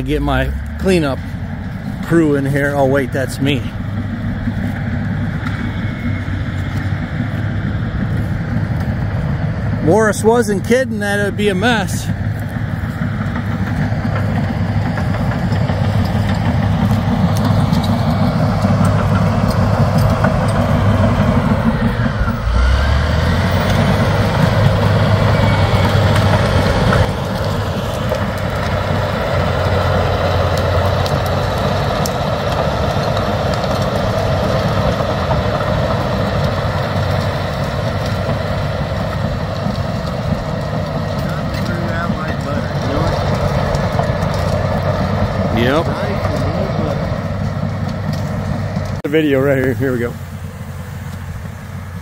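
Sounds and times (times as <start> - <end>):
bulldozer diesel engine: 0.0 - 52.0.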